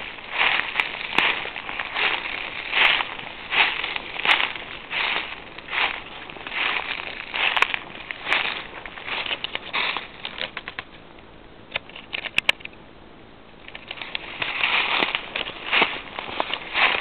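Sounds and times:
footsteps in dry leaves: 0.0s - 10.9s, 13.8s - 17.0s
sharp clicks: 11.7s - 12.8s.

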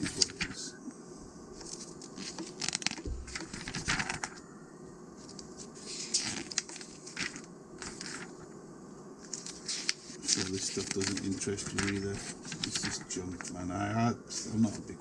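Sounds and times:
magazine pages turning: 0.0s - 0.6s, 1.6s - 4.4s, 5.2s - 8.4s, 9.2s - 13.6s.

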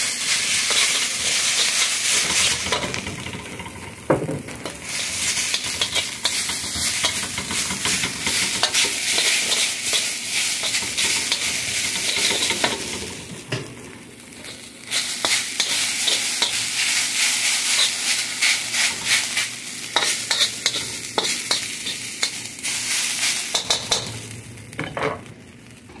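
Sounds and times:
food sizzling in a wok: 0.0s - 26.0s
metal spatula scraping a pan: 0.3s - 3.4s, 4.6s - 13.1s, 14.4s - 16.9s, 17.5s - 22.4s.

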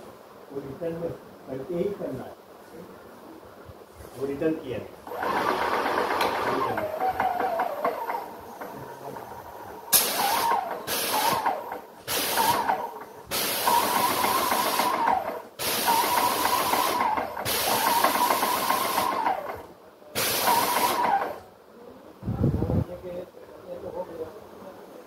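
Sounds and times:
paint sprayer motor whining: 5.1s - 21.5s
hiss: 9.9s - 21.4s.

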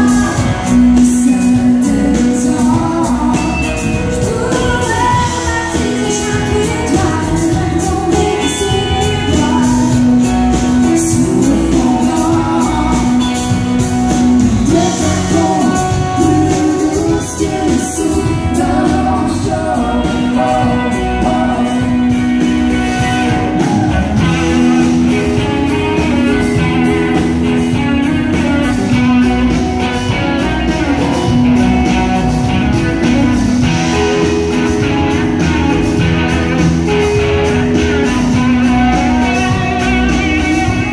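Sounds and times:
woman singing: 0.0s - 22.5s
drums: 0.0s - 40.9s
electric guitars: 0.0s - 40.9s.

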